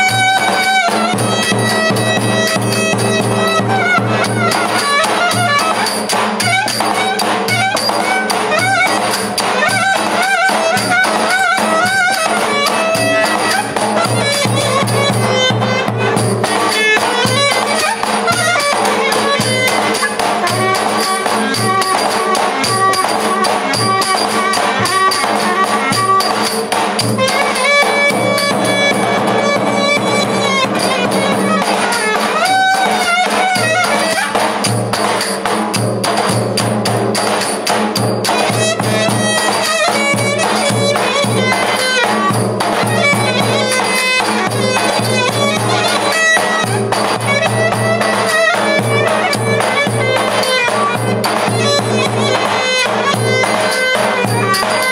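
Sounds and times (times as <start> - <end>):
reed wind instrument melody: 0.0 - 54.9
bass drum beating dance rhythm: 27.0 - 32.6.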